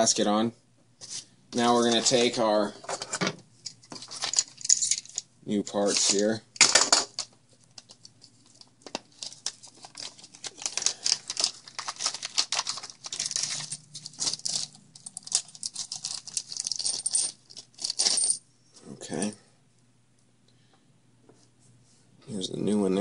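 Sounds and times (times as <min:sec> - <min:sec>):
plastic bag crinkling: 0:08.4 - 0:17.0.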